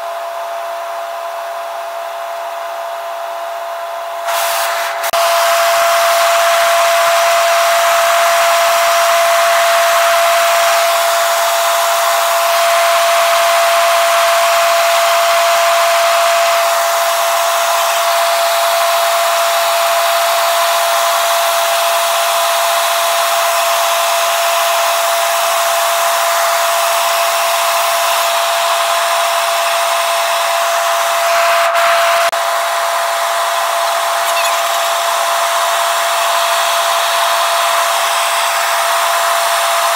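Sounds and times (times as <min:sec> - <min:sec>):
high-pitched whine: 0:30.0 - 0:39.9.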